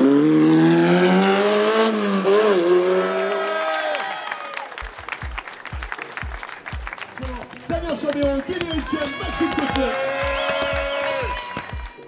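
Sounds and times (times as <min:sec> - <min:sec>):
racing car engine revving: 0:00.0 - 0:03.6
applause: 0:03.1 - 0:12.0
music beat: 0:04.8 - 0:12.0.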